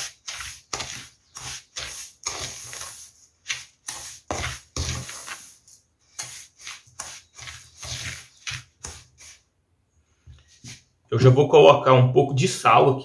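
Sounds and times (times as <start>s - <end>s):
wooden spoon scraping metal bowl: 0.0s - 9.4s.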